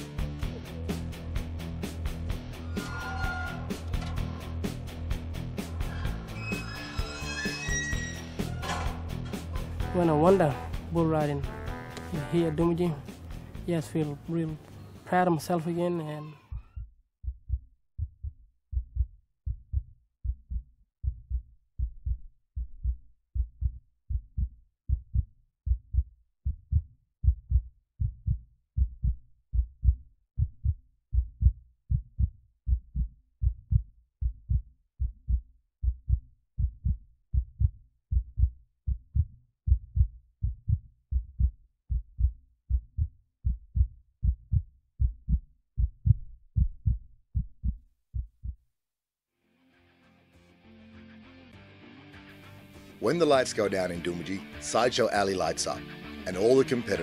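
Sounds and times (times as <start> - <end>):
heartbeat thumps: 16.5 - 48.6.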